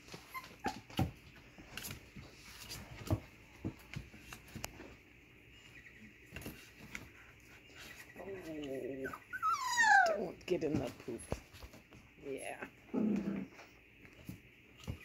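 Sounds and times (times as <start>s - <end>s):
puppies scrabbling and tapping: 0.0s - 4.9s.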